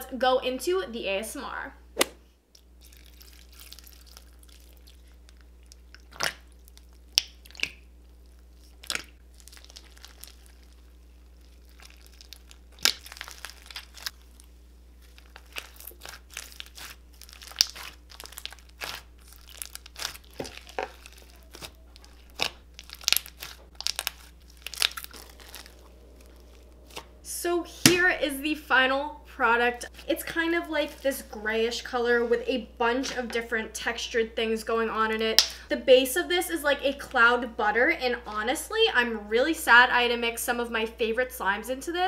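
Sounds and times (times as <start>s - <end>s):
slime popping and crackling: 2.8s - 27.2s.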